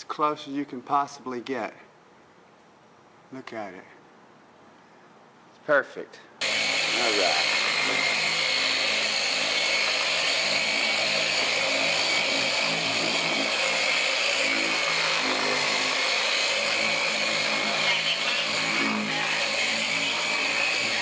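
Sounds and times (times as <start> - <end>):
electric polisher motor whir: 6.4 - 21.0
polishing pad hissing on panel: 6.4 - 21.0.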